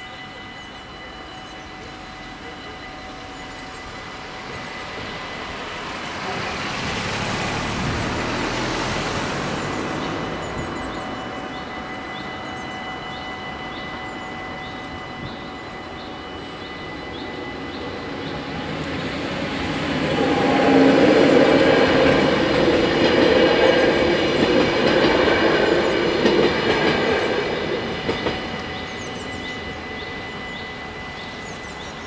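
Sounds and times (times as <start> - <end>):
level crossing bells ringing: 0.0 - 32.0
rushing noise: 3.8 - 11.5, 17.8 - 32.0.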